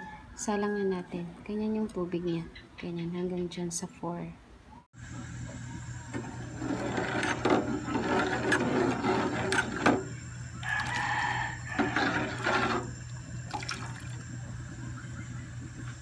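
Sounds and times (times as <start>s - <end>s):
metal ladle scraping a pot: 6.4s - 13.0s.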